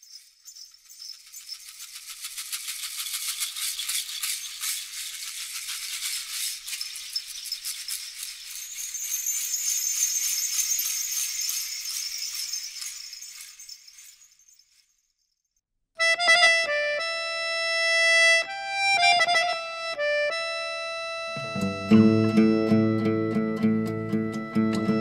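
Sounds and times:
metal jingles rattling: 0:00.0 - 0:15.3.

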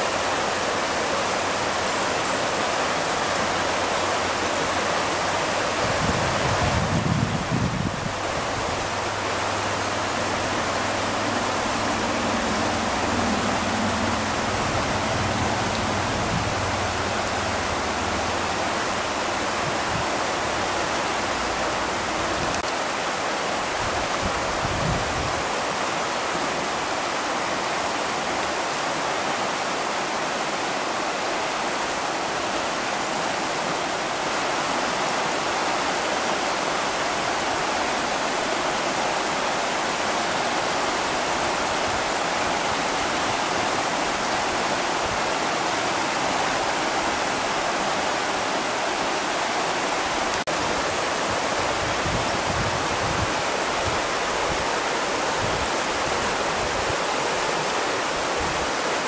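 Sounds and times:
river water rushing over rocks: 0:00.0 - 0:59.0.

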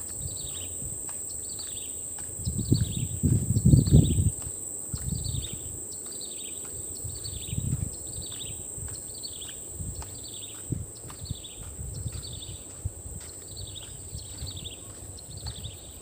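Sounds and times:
insects droning: 0:00.0 - 0:16.0
low muffled thumps: 0:02.4 - 0:05.5.

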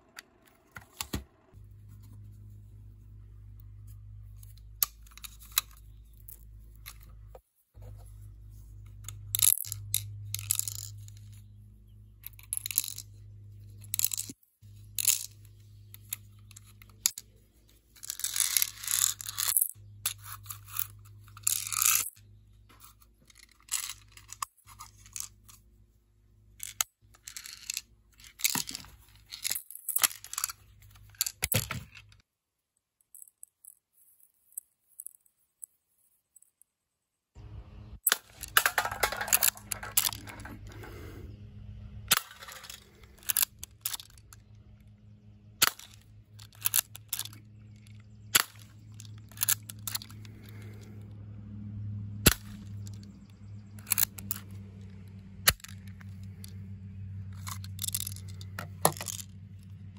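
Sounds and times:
magazine clicking and rattling: 0:04.4 - 0:07.3, 0:08.9 - 0:11.5, 0:12.2 - 0:25.6, 0:26.6 - 0:32.2, 0:38.0 - 0:41.2, 0:42.1 - 0:44.5, 0:45.6 - 0:50.9, 0:52.3 - 0:59.7
low hum: 0:37.4 - 0:59.9.

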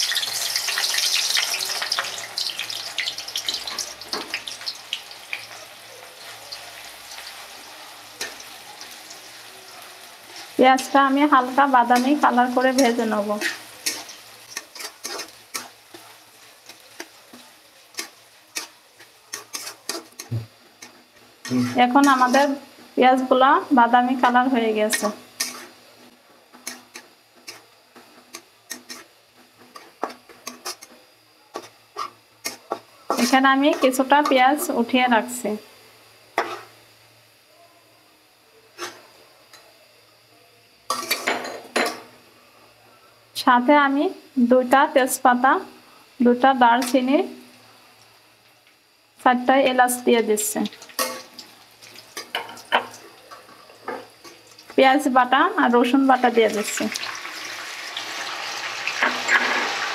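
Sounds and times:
onions sizzling in hot oil: 0:00.0 - 0:42.3, 0:43.2 - 0:59.9
metal spatula scraping a pan: 0:11.8 - 0:22.6, 0:24.9 - 0:25.8, 0:26.5 - 0:34.7, 0:36.4 - 0:36.7, 0:38.8 - 0:39.0, 0:59.0 - 0:59.8.

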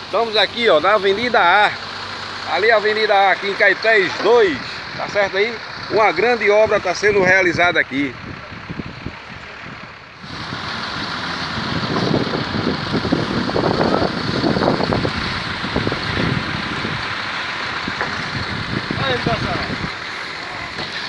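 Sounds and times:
truck engine running: 0:00.0 - 0:21.0
wind on microphone: 0:08.2 - 0:17.1, 0:17.8 - 0:20.0.

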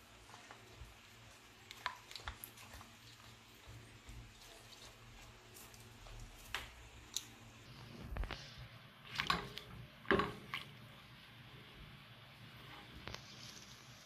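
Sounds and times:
spatula stirring fruit in water: 0:00.0 - 0:07.7.

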